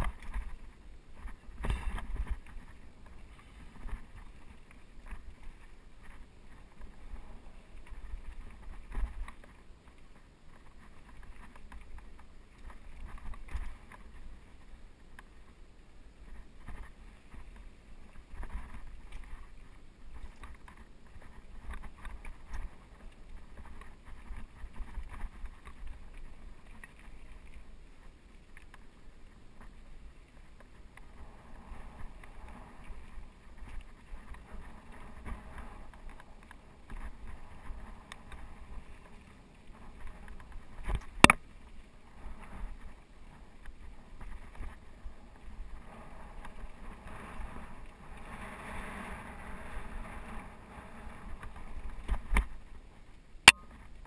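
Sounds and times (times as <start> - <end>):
bike rattling over rocks: 0.0 - 14.3
bike tyres on dirt and stones: 0.0 - 54.0
wind rumble on microphone: 0.0 - 54.0.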